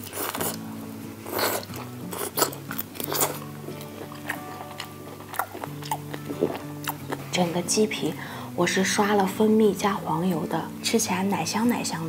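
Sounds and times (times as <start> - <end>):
background music: 0.0 - 12.0
chewing with clicks and smacks: 1.3 - 7.3.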